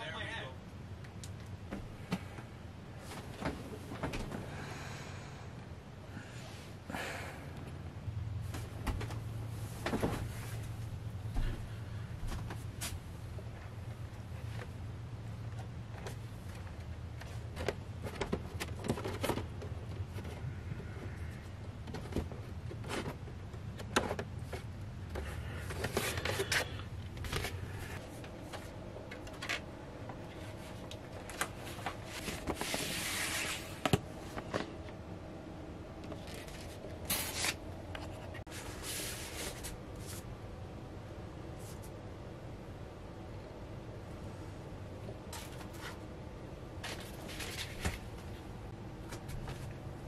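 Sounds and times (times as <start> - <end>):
low steady hum: 0.0 - 50.0
record sleeve rustling: 22.0 - 35.0, 36.0 - 40.3, 46.8 - 49.8.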